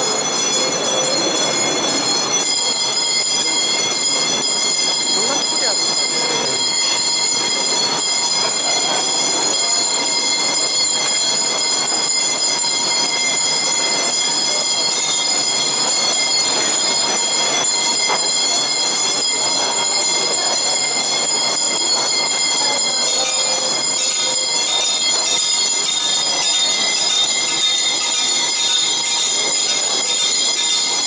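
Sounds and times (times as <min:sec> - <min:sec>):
low background hubbub: 0:00.0 - 0:31.0.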